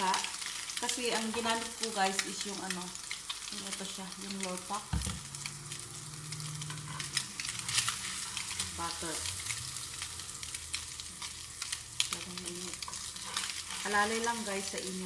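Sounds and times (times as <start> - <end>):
bread sizzling in a pan: 0.0 - 15.0
metal utensils clicking on pan: 6.4 - 9.6, 11.2 - 15.0.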